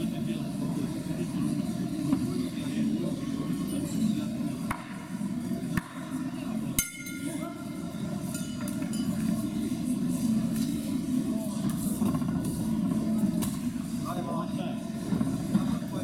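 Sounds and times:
murmur of voices: 0.0s - 16.0s
boxing ring bell: 8.3s - 9.3s.

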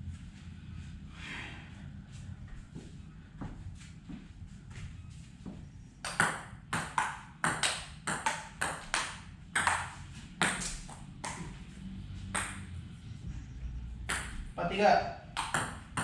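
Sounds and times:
table tennis ball clicking: 15.4s - 16.0s.

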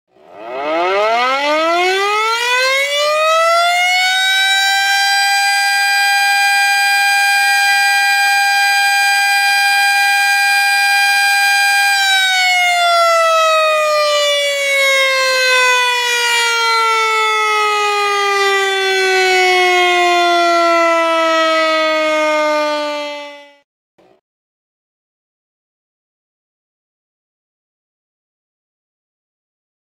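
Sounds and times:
siren wailing: 0.2s - 23.6s.

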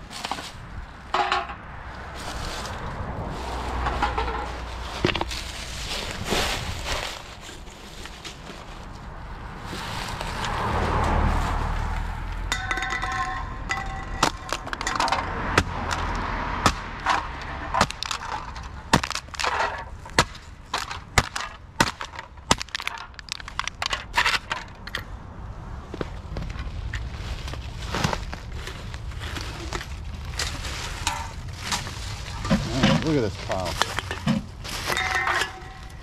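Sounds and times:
cans clinking on asphalt: 1.1s - 1.7s, 12.5s - 15.3s, 17.0s - 25.1s, 33.7s - 36.0s.

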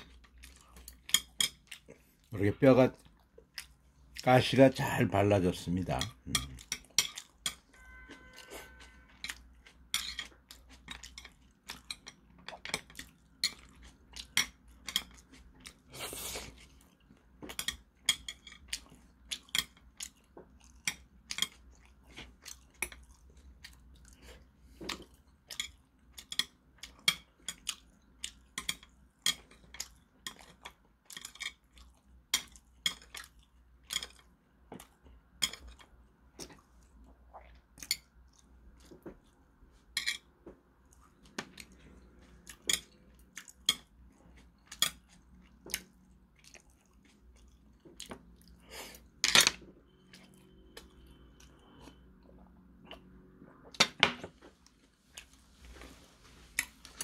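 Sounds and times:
chewing: 0.0s - 2.3s, 3.0s - 4.2s, 8.3s - 39.5s, 40.8s - 49.1s.

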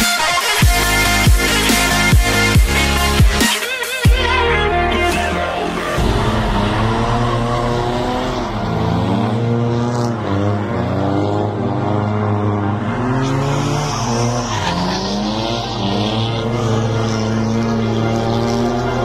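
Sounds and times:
car engine revving: 4.2s - 19.0s
tyres screeching: 11.8s - 19.0s.

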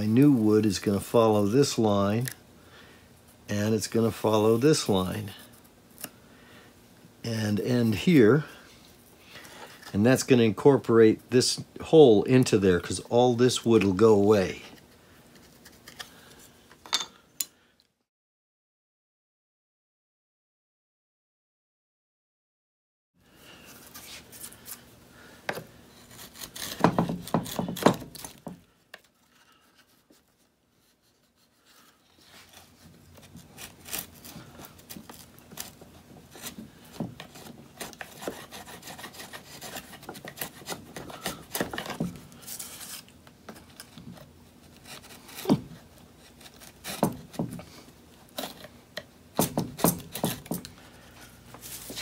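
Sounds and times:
chisel scraping wood: 25.5s - 28.6s, 31.3s - 48.8s, 49.4s - 52.0s.

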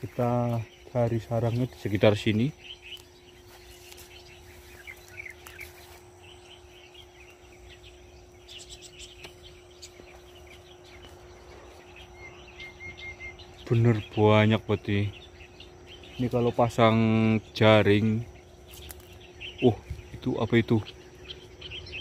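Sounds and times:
small birds chirping: 0.0s - 22.0s
steady insect buzz: 0.0s - 22.0s.

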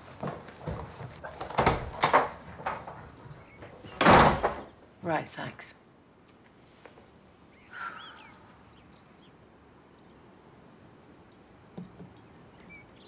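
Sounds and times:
faint birdsong chirps: 2.5s - 5.9s, 7.1s - 13.0s.

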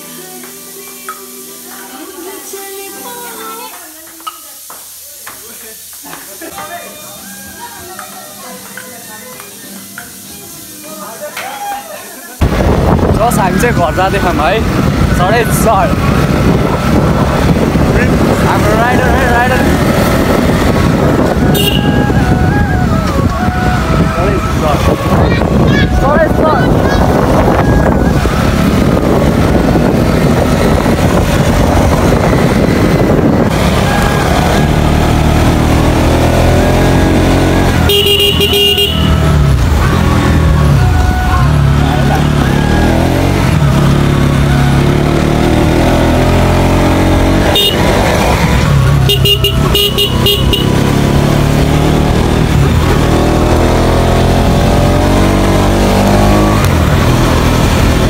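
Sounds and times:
motor scooter engine running: 12.4s - 58.0s
vehicle horn: 21.4s - 22.3s, 37.7s - 39.6s, 47.4s - 48.2s, 49.0s - 51.0s.

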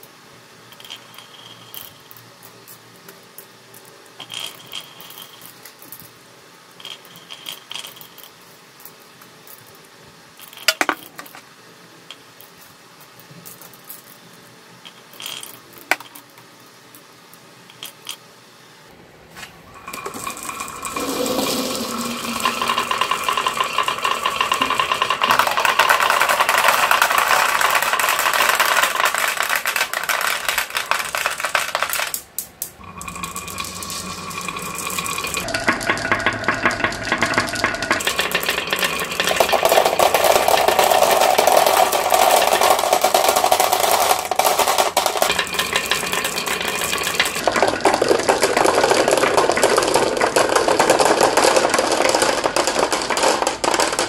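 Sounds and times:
marbles clattering down wooden track: 0.7s - 2.3s, 4.2s - 5.6s, 14.8s - 16.3s, 19.8s - 54.0s
marbles clicking on wood: 19.9s - 54.0s.

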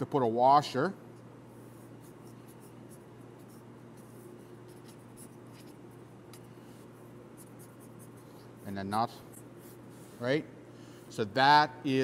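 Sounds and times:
steady low hum: 0.0s - 12.0s
pencil scratching on paper: 1.8s - 6.1s, 6.8s - 8.4s.

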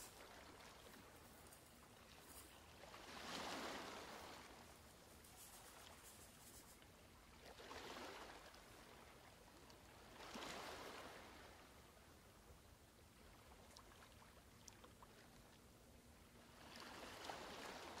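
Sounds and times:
soft hiss: 0.0s - 7.2s.

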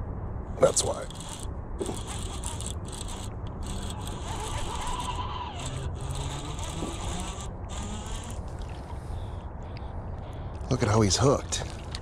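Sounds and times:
fishing reel whirring: 0.7s - 8.6s.

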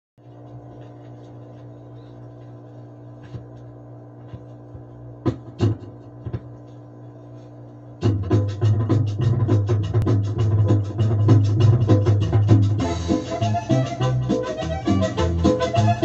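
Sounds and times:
electrical hum: 0.2s - 16.0s
music from record: 8.0s - 16.0s.

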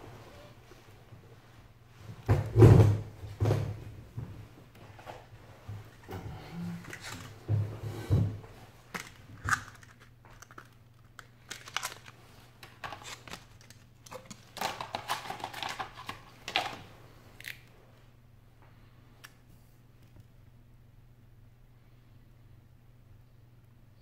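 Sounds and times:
plastic tray crackling: 6.8s - 7.4s, 8.8s - 17.6s.

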